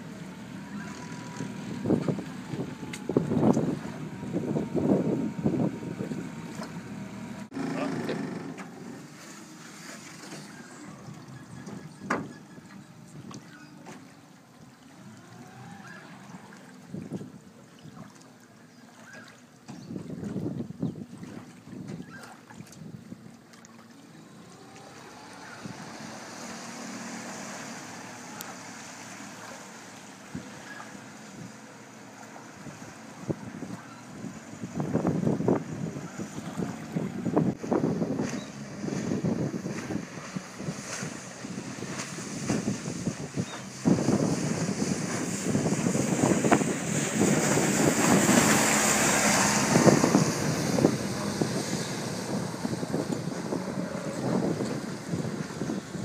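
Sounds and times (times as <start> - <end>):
wind on microphone: 0.0 - 7.6, 15.0 - 18.1, 19.7 - 23.4, 32.3 - 56.0
boat wake rushing hiss: 0.0 - 20.2, 21.0 - 56.0
outboard engine hum: 0.0 - 56.0
wake water hiss: 24.8 - 33.3, 39.8 - 55.7.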